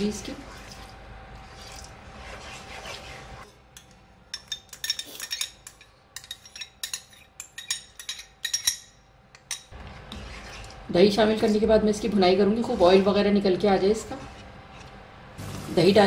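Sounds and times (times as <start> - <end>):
spatula scraping paste in pan: 0.4 - 3.6, 9.7 - 11.6, 12.4 - 15.0.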